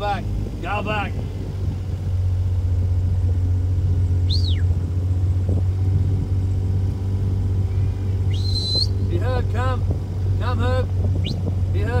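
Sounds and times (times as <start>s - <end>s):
vehicle engine running low: 0.0s - 12.0s
high whistle: 4.2s - 4.7s, 8.3s - 9.1s.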